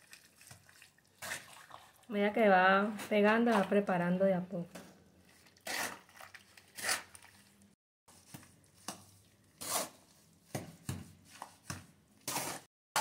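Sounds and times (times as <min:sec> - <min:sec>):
trowel scraping wet mortar: 0:05.3 - 0:07.4, 0:09.6 - 0:10.2, 0:11.4 - 0:13.0.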